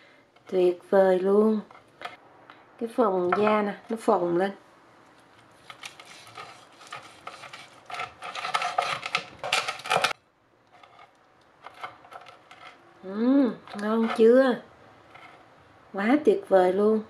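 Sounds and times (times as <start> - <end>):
cleaver crunching crisp pork skin: 5.4 - 10.2.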